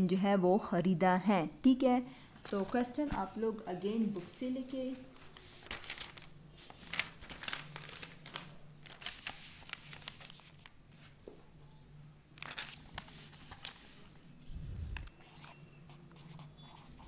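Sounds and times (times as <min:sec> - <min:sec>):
paper rustling and crinkling: 0:02.4 - 0:03.3, 0:04.2 - 0:11.2, 0:12.4 - 0:15.6.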